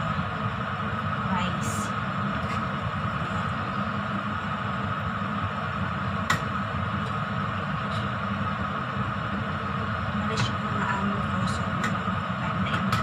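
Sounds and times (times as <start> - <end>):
kitchen hum and hiss: 0.0 - 13.0.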